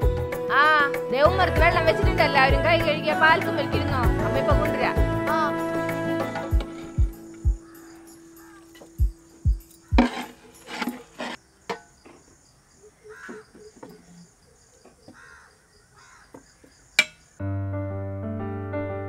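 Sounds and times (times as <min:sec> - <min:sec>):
piano music: 0:01.0 - 0:09.2, 0:17.4 - 0:19.0
insects chirping: 0:05.4 - 0:17.4
metal scoop scraping pots: 0:06.3 - 0:07.0, 0:09.7 - 0:11.9
bird calling: 0:06.3 - 0:11.4, 0:12.0 - 0:17.4.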